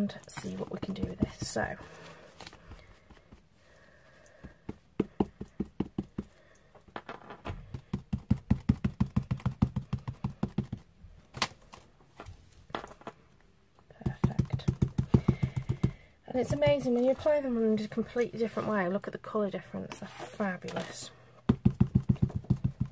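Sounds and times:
sponge tapping on card: 4.4 - 6.3, 7.7 - 10.8, 14.0 - 16.0, 21.5 - 22.9.

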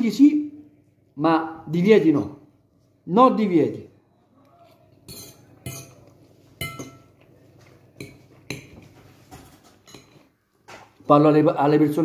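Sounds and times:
metal fork clinking on bowl: 5.1 - 7.2, 9.8 - 10.3.

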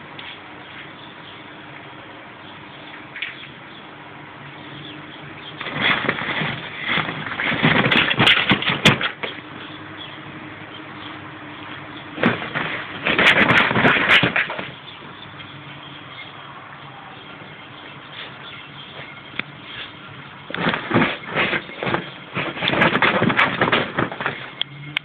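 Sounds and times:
plastic toy rustling and scraping: 5.6 - 9.4, 12.2 - 14.8, 19.6 - 24.7.

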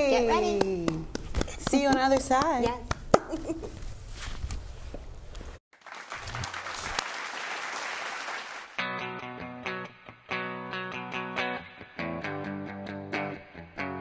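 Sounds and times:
hands clapping: 0.4 - 3.6, 5.8 - 8.8
electric guitar playing: 8.8 - 14.0.

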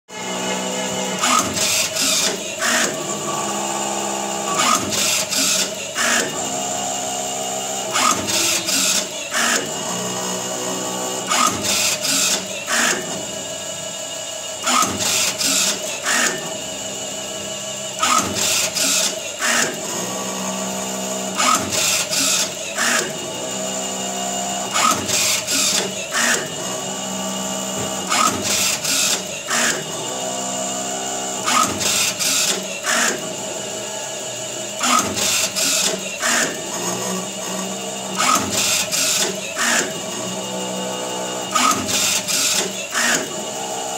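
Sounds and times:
machine motor whine: 0.1 - 43.9
sharp mechanical clacks: 1.2 - 3.0, 7.9 - 9.7, 14.6 - 16.4, 18.0 - 19.8, 21.4 - 23.2, 24.7 - 26.6, 27.9 - 29.9, 34.7 - 36.6, 38.2 - 40.0.

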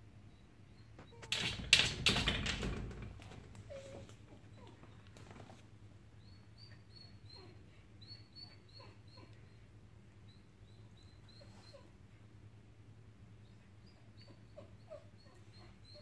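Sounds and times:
dog whining: 3.6 - 5.0, 6.9 - 9.6, 11.0 - 12.0, 13.8 - 16.0.

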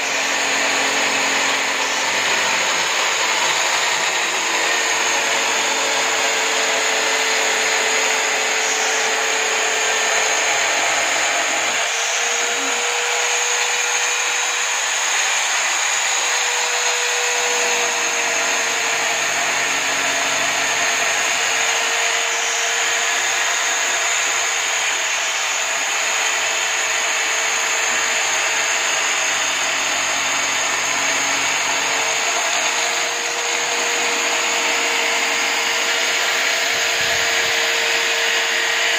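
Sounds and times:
drill motor whine: 0.0 - 38.9
sandpaper sanding wood: 0.0 - 38.9.

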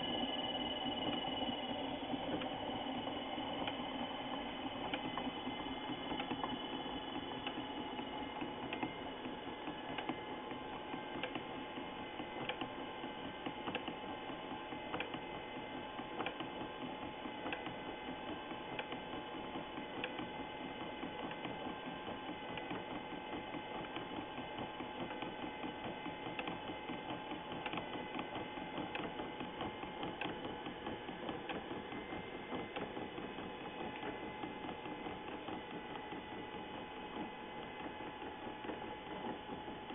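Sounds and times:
lathe motor whine: 0.0 - 39.9
light mechanical clicks: 14.9 - 15.2, 16.2 - 16.6, 17.4 - 17.8.

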